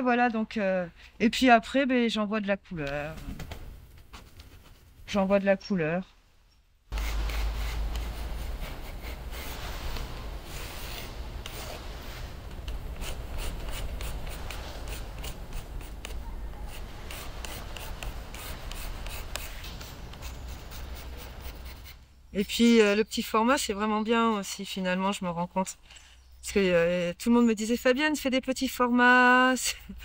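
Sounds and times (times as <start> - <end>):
pencil scratching on paper: 6.9 - 12.0, 12.7 - 22.0, 28.6 - 29.6.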